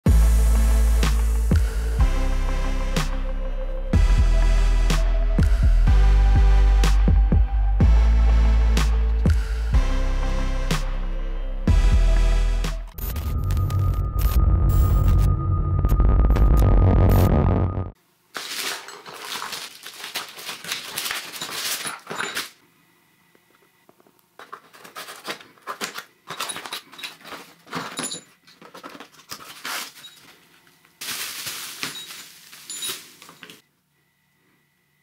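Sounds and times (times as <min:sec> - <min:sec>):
electronic music with low hum: 0:00.1 - 0:18.0
cardboard rustling and scraping: 0:18.4 - 0:22.6, 0:24.4 - 0:33.6
scissors cutting packing tape: 0:18.4 - 0:22.6, 0:24.4 - 0:27.6.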